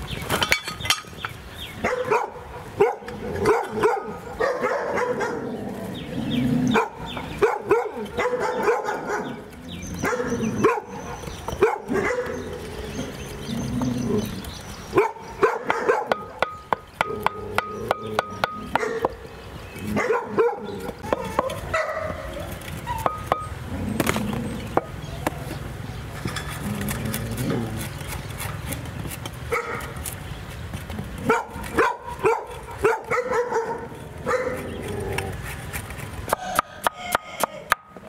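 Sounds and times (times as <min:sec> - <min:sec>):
dog barking and yipping: 0:01.8 - 0:05.5, 0:06.7 - 0:12.6, 0:14.9 - 0:16.4, 0:18.7 - 0:19.1, 0:19.9 - 0:23.4, 0:29.5 - 0:30.0, 0:31.2 - 0:34.7.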